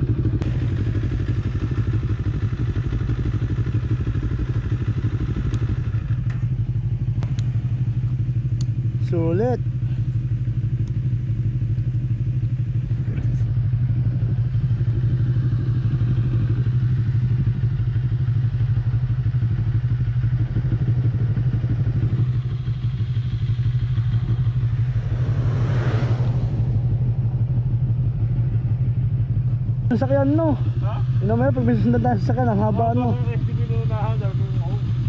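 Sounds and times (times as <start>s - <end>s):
motorcycle engine idling: 0.0s - 35.0s
vehicle passing: 22.2s - 29.0s.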